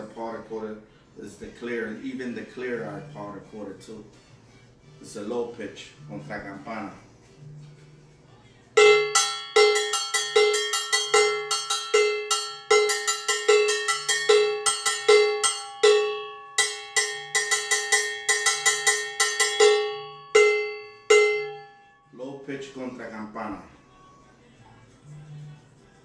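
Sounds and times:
cowbell struck with drumstick: 8.8 - 21.7.

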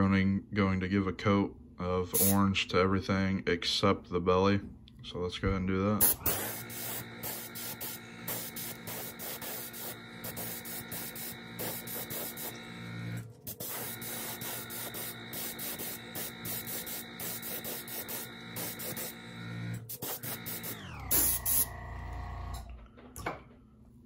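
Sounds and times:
air compressor humming: 2.1 - 2.5, 6.0 - 23.2
airbrush hissing bursts: 2.2 - 2.4, 6.0 - 21.7.

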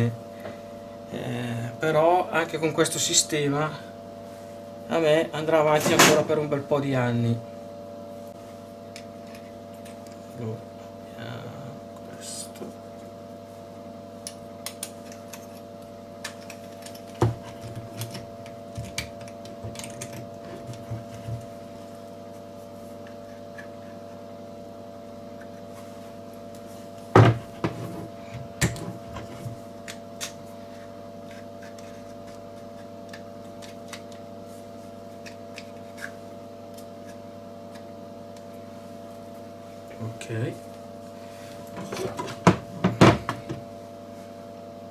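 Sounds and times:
steady low hum: 0.0 - 44.9.

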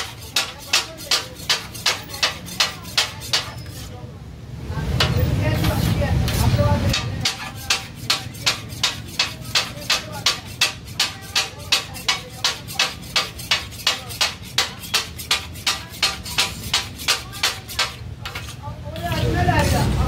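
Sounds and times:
metal blade chopping on griddle: 0.0 - 3.9, 5.0 - 19.8.

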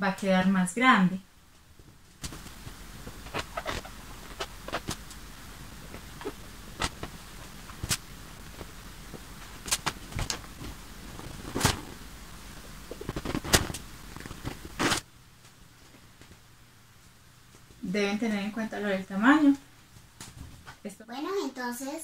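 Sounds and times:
steady hiss: 0.0 - 22.0
pen scratching on balloon: 3.2 - 5.0.

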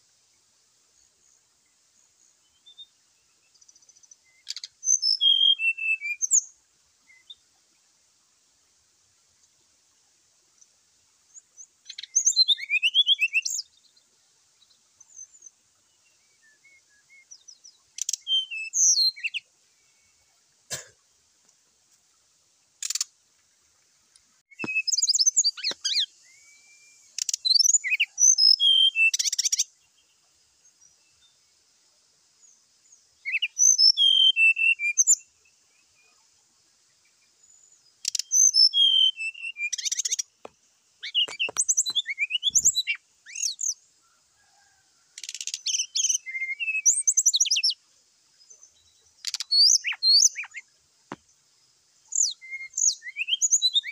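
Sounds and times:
bird high chirping song: 2.4 - 6.5, 11.3 - 14.0, 14.6 - 20.2, 24.5 - 30.1, 32.4 - 36.2, 37.1 - 40.4, 41.0 - 43.8, 44.6 - 47.8, 48.5 - 50.7, 52.1 - 53.9.

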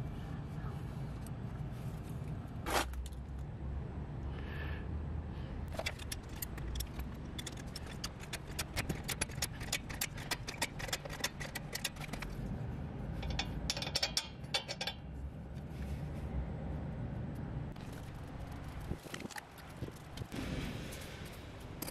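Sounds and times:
ratchet wrench clicking: 5.8 - 12.3.

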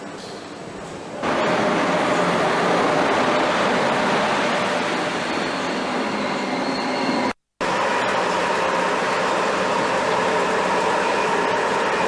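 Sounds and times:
train rolling past: 0.5 - 12.0.

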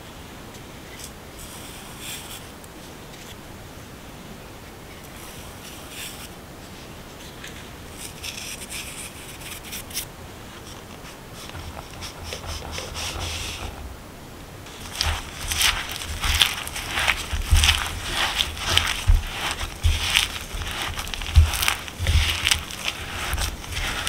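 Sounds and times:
seasoning sprinkled rustles: 7.9 - 13.8, 14.6 - 24.0
crunching rubs of hand mixing: 10.6 - 13.9, 14.6 - 24.0
flour poured with soft rush: 14.7 - 24.0.

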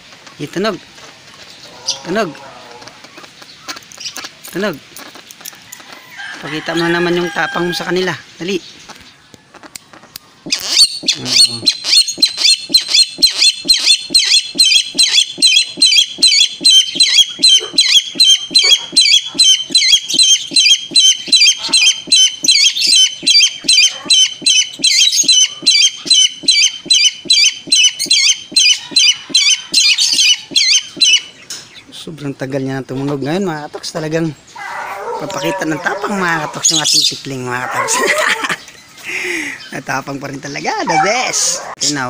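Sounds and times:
bird calling harsh repeated notes: 6.4 - 31.9, 34.4 - 38.6.

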